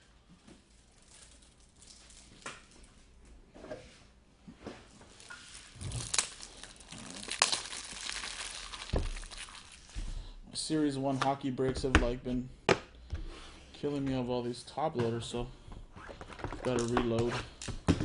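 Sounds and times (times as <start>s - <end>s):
plastic packaging crinkling: 0.6s - 2.9s, 5.1s - 10.2s.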